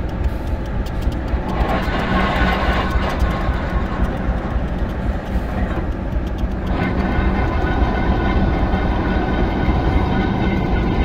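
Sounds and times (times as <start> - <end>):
diesel locomotive engine rumbling: 0.0 - 11.0.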